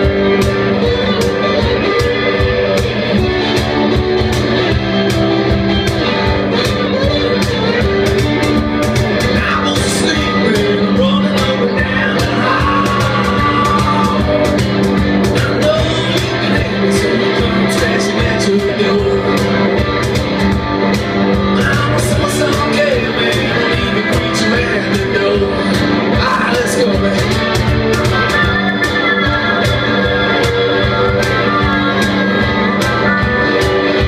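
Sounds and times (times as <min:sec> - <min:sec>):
electric guitar: 0:00.0 - 0:34.0
steady drum beat: 0:00.0 - 0:34.0
person singing: 0:09.2 - 0:19.8, 0:21.5 - 0:34.0.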